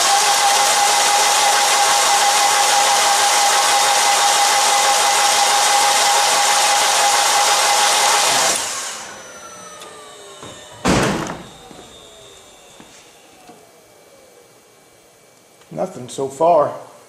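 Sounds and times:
engine winding down whine: 0.0 - 14.9
loud thump: 10.4 - 11.9.

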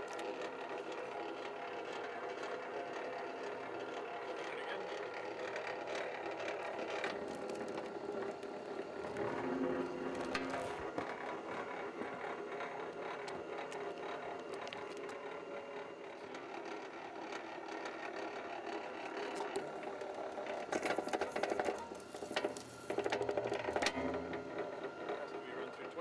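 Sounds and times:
wire stripper machine clattering: 19.2 - 26.0.

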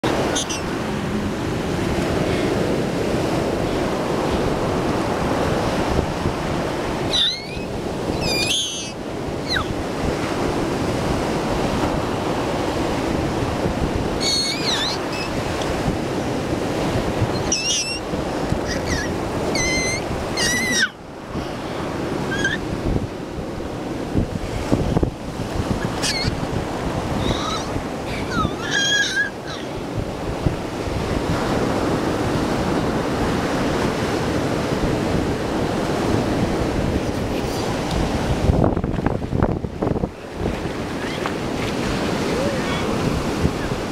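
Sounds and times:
waves breaking on a beach: 0.0 - 43.9
short high-pitched squeals: 0.3 - 0.7, 7.1 - 9.7, 14.2 - 15.4, 17.3 - 18.0, 18.7 - 20.9, 22.3 - 22.6.

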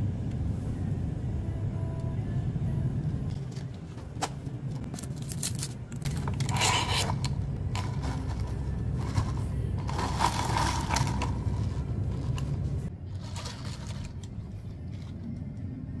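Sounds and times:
steady low hum: 0.0 - 16.0
straw scraping among ice cubes: 6.1 - 14.2.

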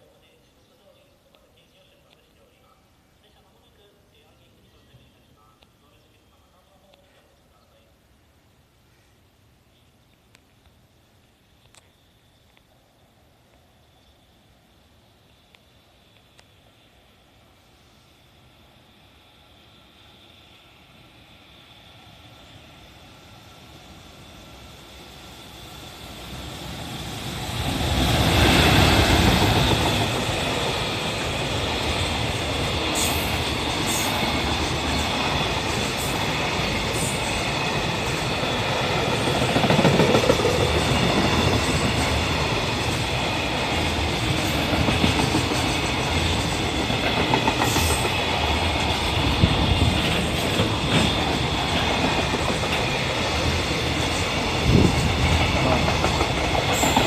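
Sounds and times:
electric locomotive passing: 11.2 - 57.0
wheels clacking over rail joints: 31.6 - 57.0.

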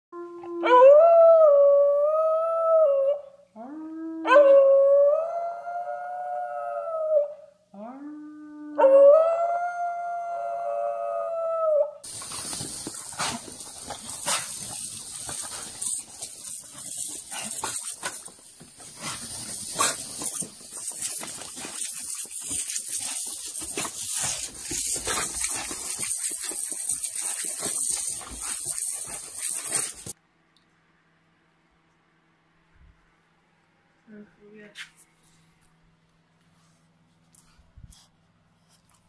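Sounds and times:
dog howling: 0.2 - 12.0
garden hose spray hissing: 12.0 - 30.2
water splashing on wood: 12.1 - 30.2.

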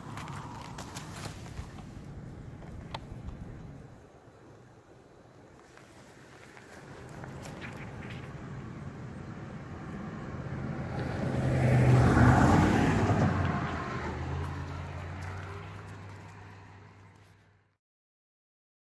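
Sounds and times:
vehicle engine passing by: 6.8 - 17.5.

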